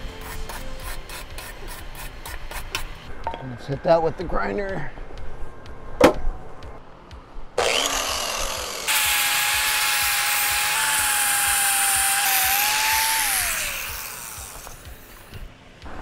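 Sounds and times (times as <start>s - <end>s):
angle grinder grinding metal: 7.6s - 15.4s.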